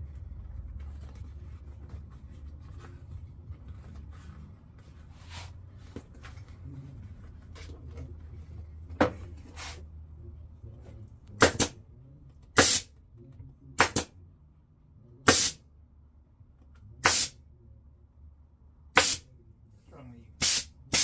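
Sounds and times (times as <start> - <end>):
pneumatic staple gun firing: 11.4 - 11.7, 12.6 - 12.9, 13.8 - 14.1, 15.3 - 15.6, 17.1 - 17.3, 19.0 - 19.2, 20.4 - 21.0
short hiss of air: 20.4 - 21.0.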